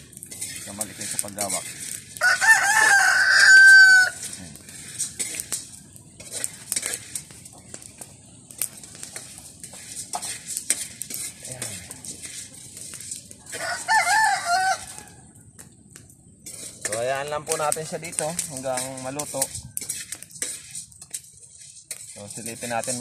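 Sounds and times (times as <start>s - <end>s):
rooster crowing: 2.2s - 4.2s, 13.5s - 15.4s.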